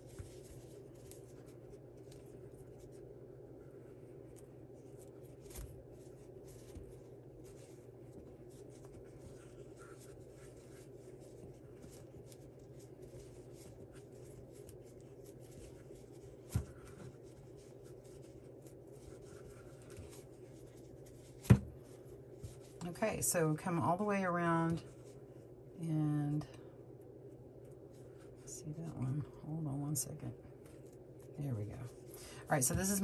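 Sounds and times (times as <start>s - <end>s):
steady low hum: 0.0s - 33.0s
crochet hook rubbing and scratching: 4.3s - 21.2s.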